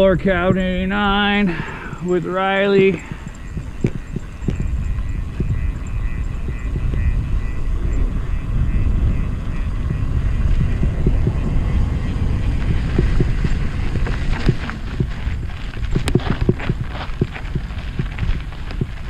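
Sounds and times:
bike tyre rumble: 0:00.0 - 0:19.0
wind buffeting microphone: 0:00.0 - 0:19.0.

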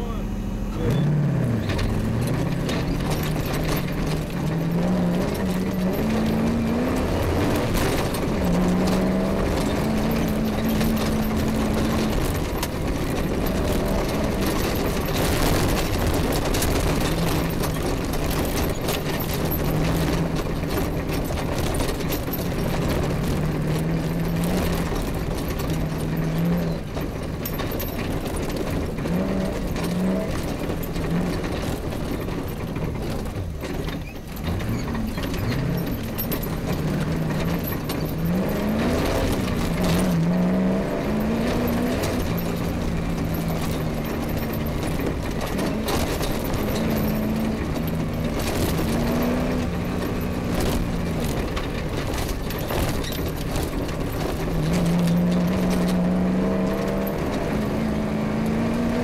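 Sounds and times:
rally car engine revving: 0:00.0 - 0:59.0
vehicle rattling and knocking: 0:00.0 - 0:59.0.

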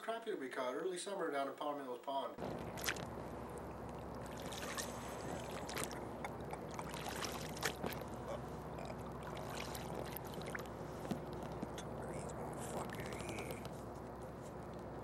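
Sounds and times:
water lapping and splashing: 0:02.4 - 0:15.0
steady hiss: 0:10.6 - 0:15.0.

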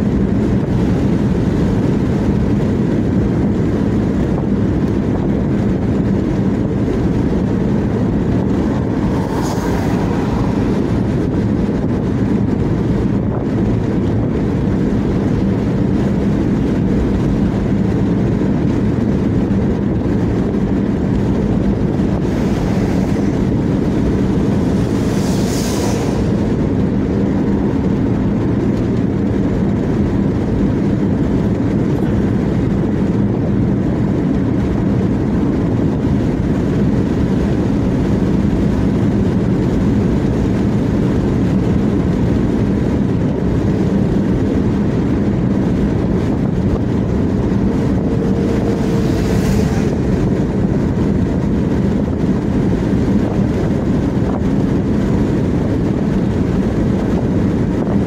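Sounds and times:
car road noise in cabin: 0:00.0 - 0:58.0
brief rush of higher noise: 0:24.8 - 0:26.6.

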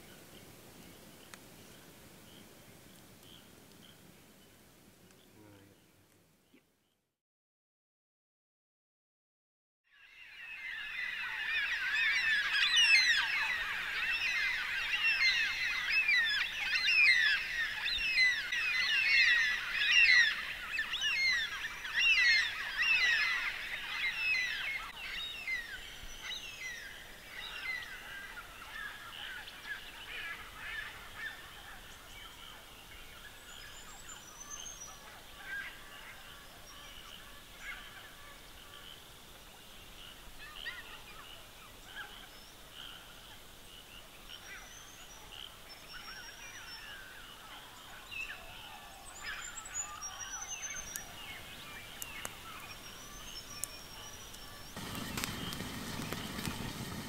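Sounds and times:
flock of birds squawking: 0:10.4 - 0:25.1, 0:46.8 - 0:57.0.

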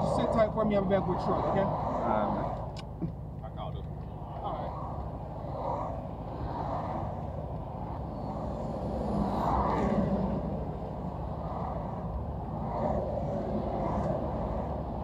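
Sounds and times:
highway traffic rumble: 0:00.0 - 0:15.0
vehicle passing: 0:00.0 - 0:15.0.

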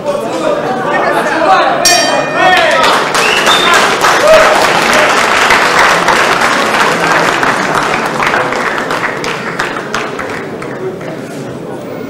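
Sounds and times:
audience applauding: 0:02.4 - 0:11.2.

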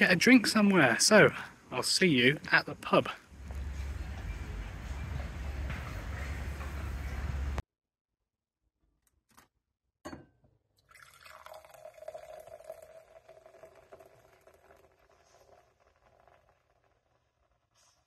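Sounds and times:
beer pouring and fizzing into glass: 0:10.8 - 0:18.0.

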